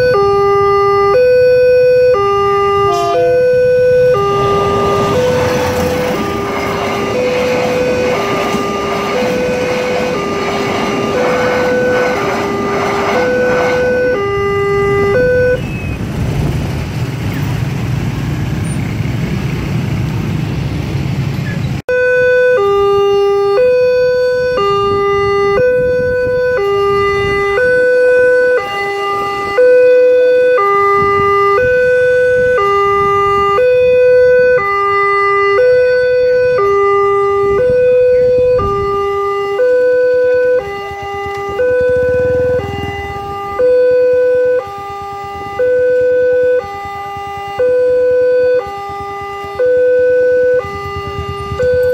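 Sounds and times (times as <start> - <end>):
level crossing alarm two-tone: 0.0 - 16.0
passing train rumble: 0.0 - 51.9.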